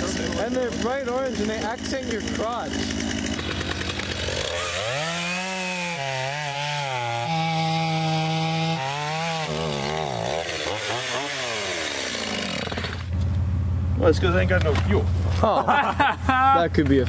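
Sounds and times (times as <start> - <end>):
chainsaw revving and cutting log: 0.0 - 13.2.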